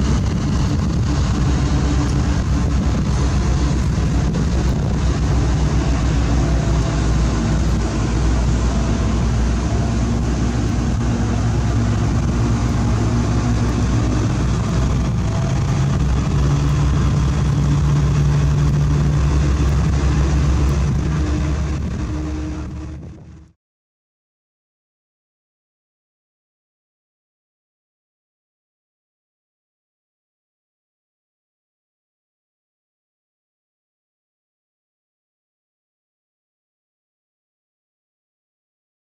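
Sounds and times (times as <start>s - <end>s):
heavy diesel engine running: 0.0s - 23.6s.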